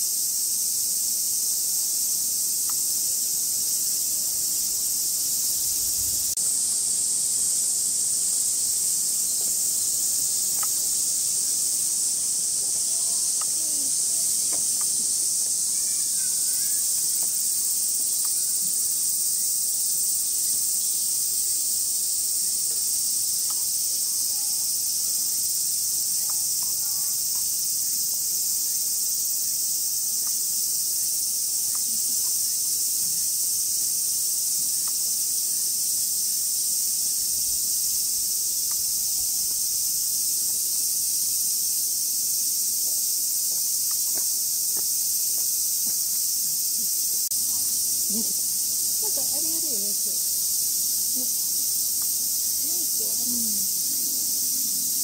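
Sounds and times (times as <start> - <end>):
cicadas shrilling: 0.0 - 55.0
faint ticks and rustles: 8.3 - 11.2, 12.3 - 19.0, 22.6 - 25.1, 26.1 - 27.6, 30.0 - 30.5, 31.6 - 32.4, 42.7 - 54.0.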